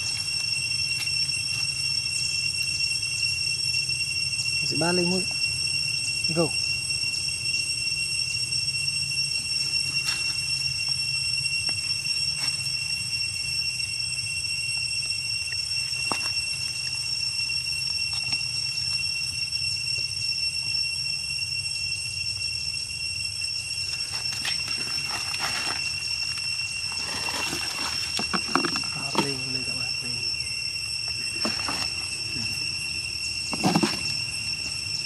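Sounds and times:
insect chorus drone: 0.0s - 35.0s
scuffling and rustling: 24.0s - 29.4s.

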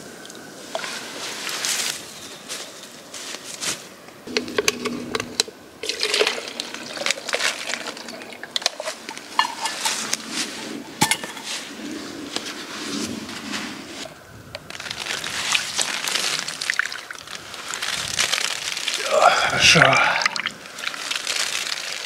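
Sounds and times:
water sloshing: 4.3s - 10.2s
plastic bottle crinkling: 4.3s - 10.3s, 14.6s - 22.0s.

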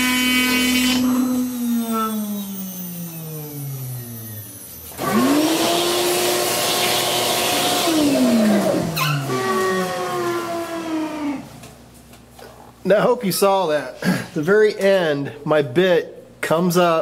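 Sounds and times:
cnc router spindle winding down: 0.0s - 11.5s.

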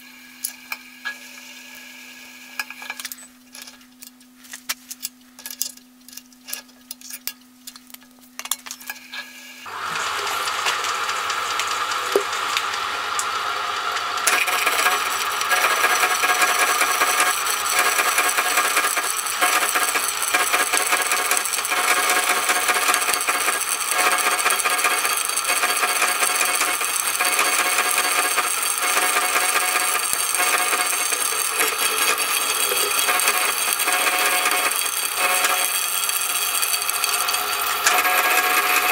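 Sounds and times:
steady motor hum: 7.8s - 38.9s
saw cutting into metal: 9.6s - 38.9s
milling machine running: 9.7s - 38.9s.

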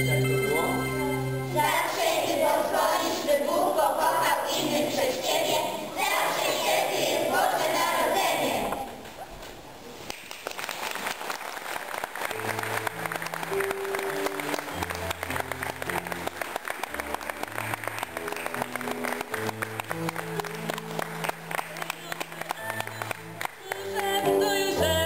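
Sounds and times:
instrumental music with held chords: 0.0s - 1.6s
audience applauding: 10.1s - 24.2s.

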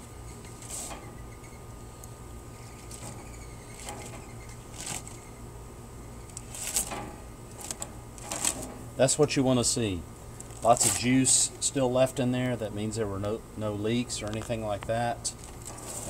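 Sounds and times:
steady low hum: 0.0s - 16.0s
aluminium foil crinkling: 2.8s - 5.3s, 6.3s - 8.8s, 10.4s - 11.1s, 15.3s - 16.0s.

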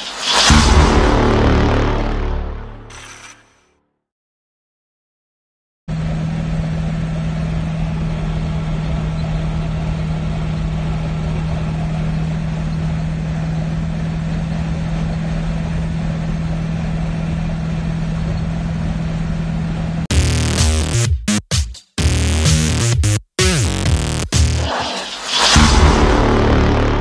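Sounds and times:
car engine and exhaust drone: 5.9s - 20.4s, 25.6s - 27.0s.

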